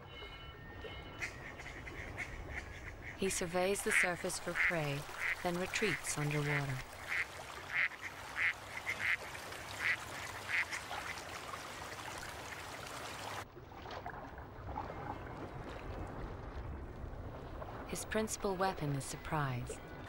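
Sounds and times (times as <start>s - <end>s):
wetland ambience: 0.0s - 20.0s
ducks quacking: 1.2s - 11.2s.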